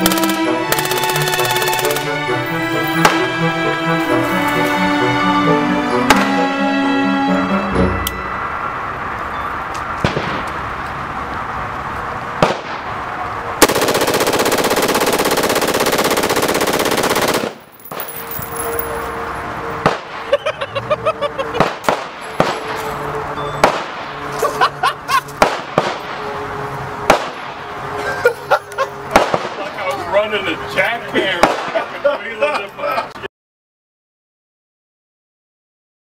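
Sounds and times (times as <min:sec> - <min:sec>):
rifle automatic fire: 0:00.0 - 0:02.2, 0:13.6 - 0:18.1.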